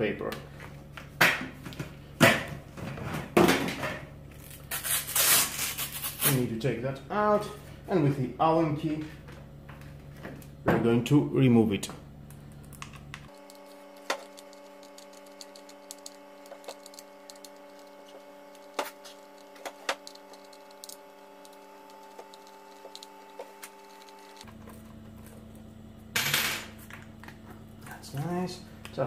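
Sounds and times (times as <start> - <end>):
steady drone of held tones: 11.2 - 26.4.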